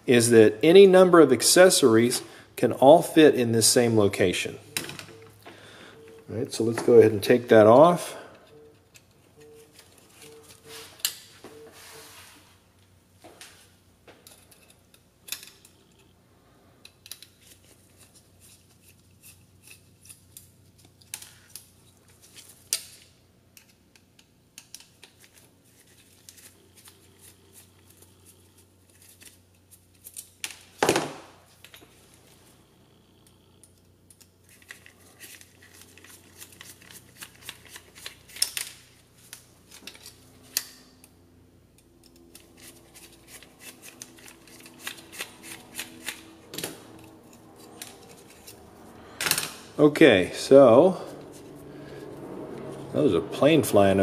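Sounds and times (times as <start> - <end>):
aircraft flying over: 50.7 - 54.0.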